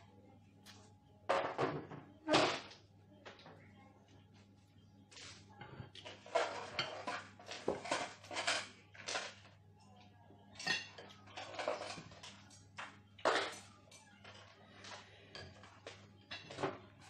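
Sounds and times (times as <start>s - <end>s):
cutlery and plate clattering: 5.8s - 9.6s, 10.5s - 17.0s.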